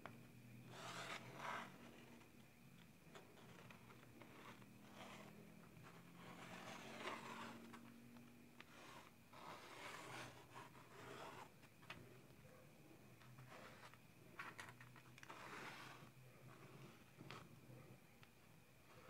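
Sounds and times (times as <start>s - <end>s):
pen scratching on foam: 0.6s - 2.2s, 3.1s - 7.9s, 8.6s - 11.6s, 15.2s - 17.3s.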